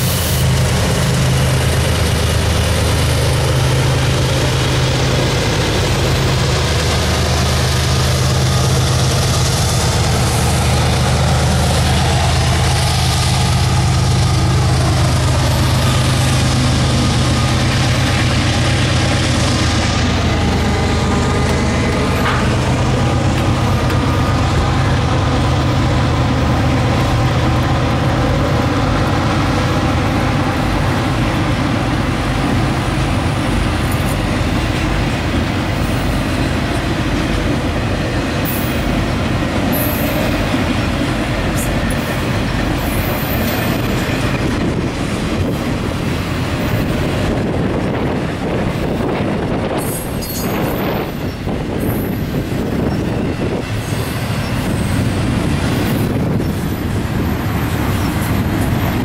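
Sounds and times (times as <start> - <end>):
diesel locomotive drone: 0.0 - 59.0
freight cars rumbling on rails: 0.0 - 59.0.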